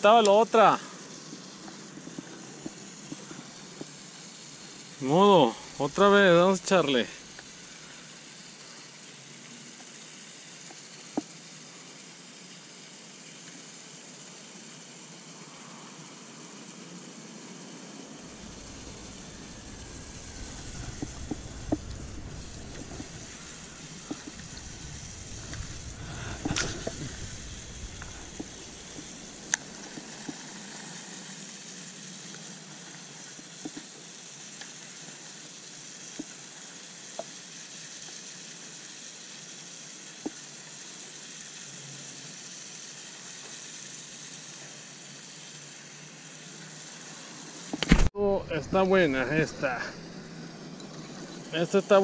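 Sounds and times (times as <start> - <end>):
fishing reel cranking hiss: 0.0 - 16.8, 18.2 - 48.0
low rumble: 18.2 - 30.0.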